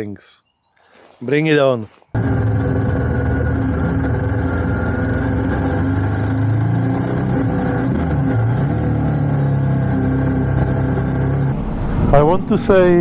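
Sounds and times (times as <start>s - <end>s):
motorcycle engine running: 2.2s - 11.4s.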